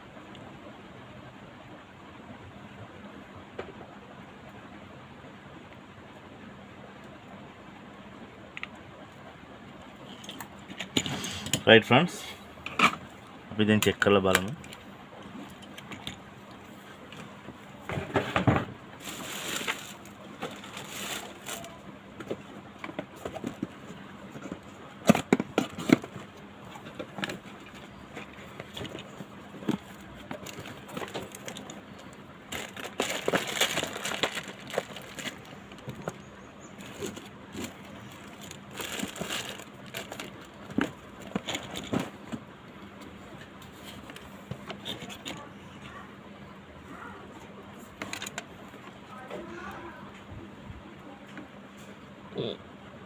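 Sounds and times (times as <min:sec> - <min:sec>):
cardboard box and bags rustling: 0:17.8 - 0:36.2, 0:36.8 - 0:42.4.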